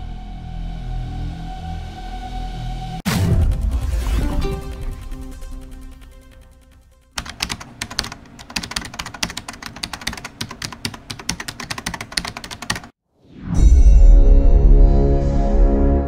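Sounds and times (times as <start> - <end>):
rapid keyboard typing clicks: 7.2 - 13.0.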